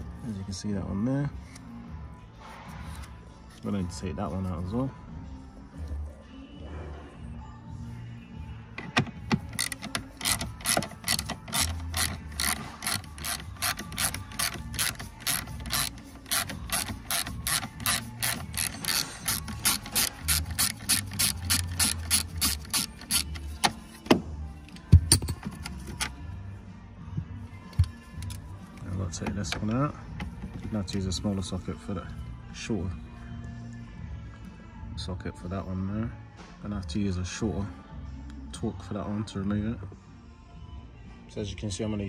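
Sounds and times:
socket ratchet clicking: 0:08.9 - 0:23.8.

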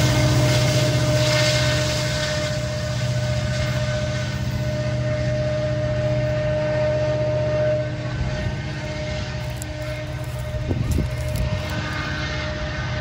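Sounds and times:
diesel locomotive drone: 0:00.0 - 0:13.0
locomotive whine: 0:00.0 - 0:13.0.

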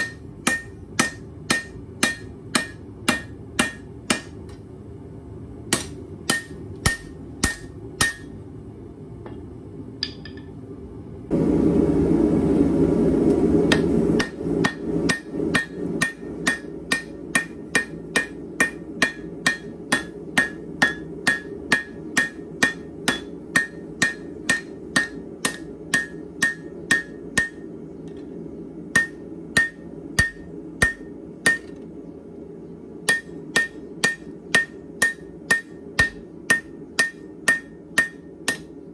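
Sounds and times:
hammer striking steel on anvil: 0:00.0 - 0:04.6, 0:05.7 - 0:08.4, 0:10.0 - 0:10.6, 0:13.7 - 0:28.2, 0:28.9 - 0:31.8, 0:33.0 - 0:38.8
low rushing noise: 0:11.3 - 0:15.4.

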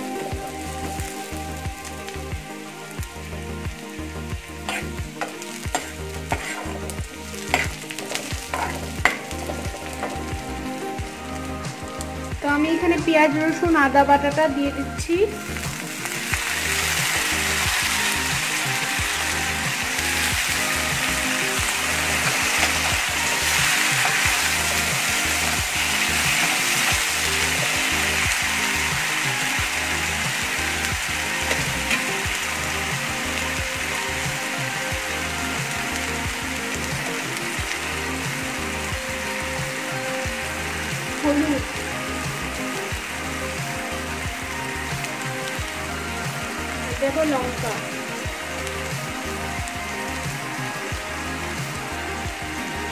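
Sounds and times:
onions sizzling in hot oil: 0:00.0 - 0:52.9
metal spoon scraping a pan: 0:04.6 - 0:10.2.

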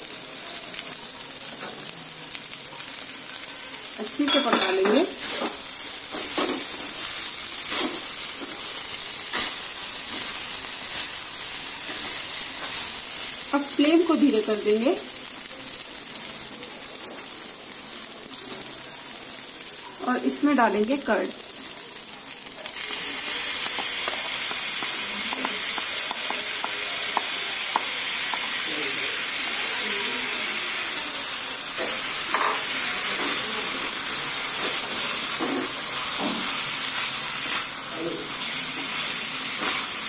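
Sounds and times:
rice sizzling in oil: 0:00.0 - 0:40.0
wooden spatula stirring and clicking: 0:23.6 - 0:28.5.

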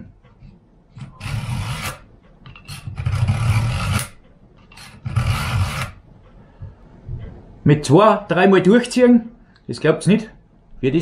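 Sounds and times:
knife scraping through sharpener: 0:01.0 - 0:02.0, 0:02.6 - 0:06.0.

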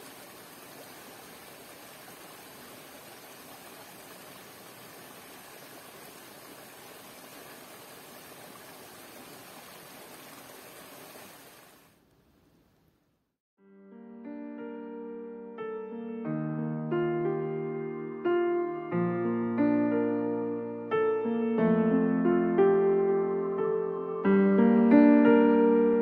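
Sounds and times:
stream rushing over stones: 0:00.0 - 0:12.0.

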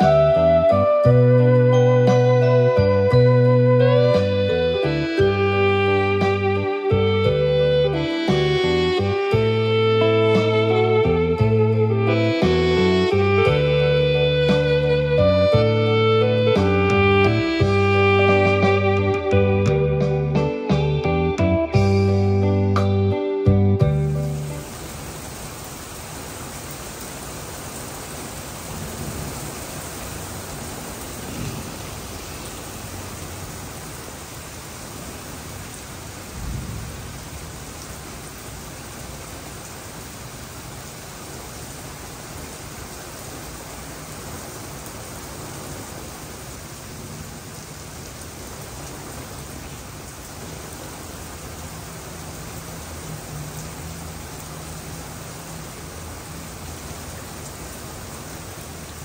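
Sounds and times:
heavy rain pouring: 0:00.0 - 0:59.0
thunder rumbling: 0:28.6 - 0:33.5, 0:36.3 - 0:37.8.

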